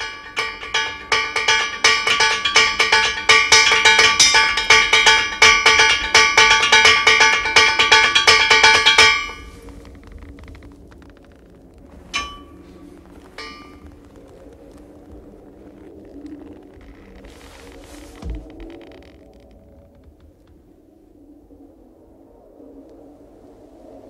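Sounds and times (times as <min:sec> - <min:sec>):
metal percussion struck rapidly: 0:00.0 - 0:09.4.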